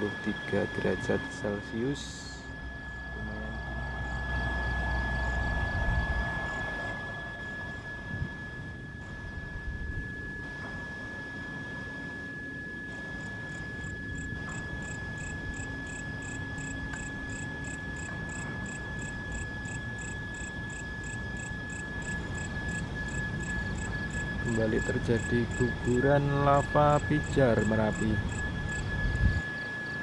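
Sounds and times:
insect high trill: 0.0s - 9.6s, 13.2s - 30.0s
low rumbling background: 0.0s - 10.0s
insect chirping in pulses: 0.0s - 10.4s, 13.1s - 30.0s.

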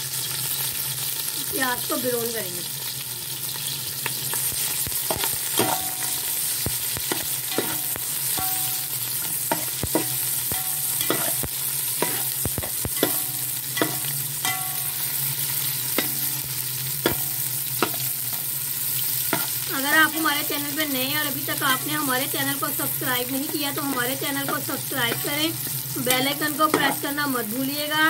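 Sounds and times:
onions sizzling in hot oil: 0.0s - 28.0s
metal spoon scraping pot: 7.1s - 15.0s.

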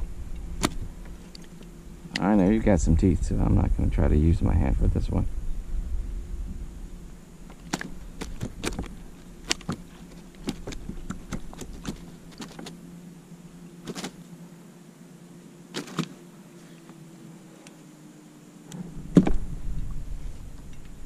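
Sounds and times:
faint steady hum: 0.0s - 21.0s
clicks and knocks handling fish: 7.5s - 12.8s.

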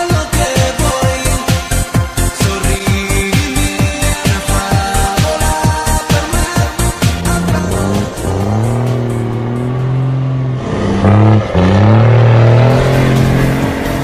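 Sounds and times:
diesel truck engine driving past: 6.8s - 14.0s.

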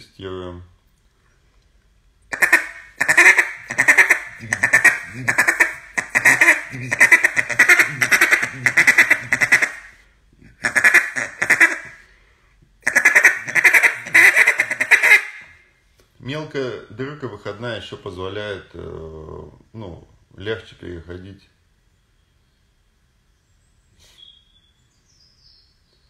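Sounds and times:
duck call raspy quacks: 2.3s - 12.1s, 12.8s - 15.6s.

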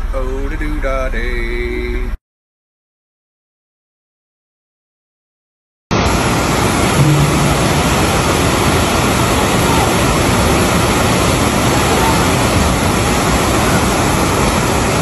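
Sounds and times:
flooded river roaring: 6.0s - 15.0s.

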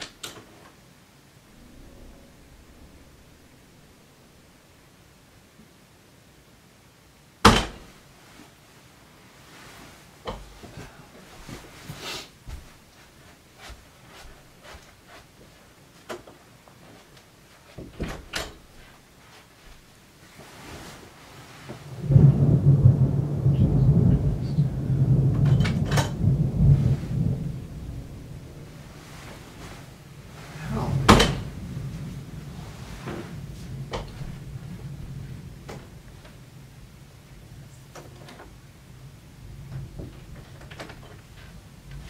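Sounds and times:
thunder rumbling: 1.3s - 6.4s, 21.8s - 42.0s.

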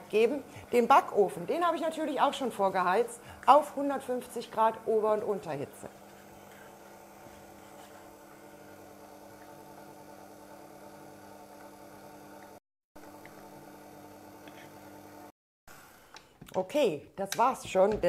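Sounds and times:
stand mixer motor humming: 5.9s - 15.3s.

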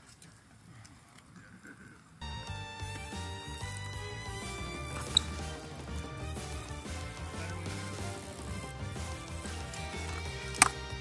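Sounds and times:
music with sustained tones: 2.2s - 11.0s
pulsing bass: 2.2s - 11.0s.

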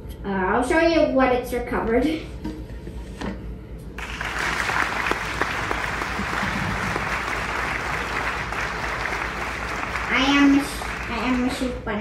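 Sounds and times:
applause: 4.0s - 12.0s.

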